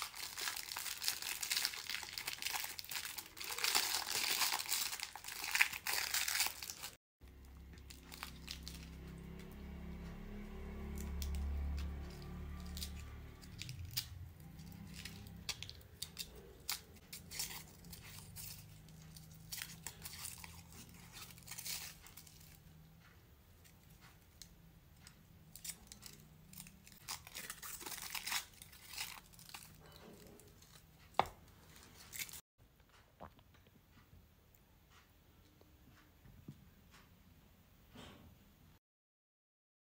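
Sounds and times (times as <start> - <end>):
foil wrapper crinkling: 0.0 - 9.0, 12.1 - 22.6, 25.6 - 30.8, 31.8 - 32.4.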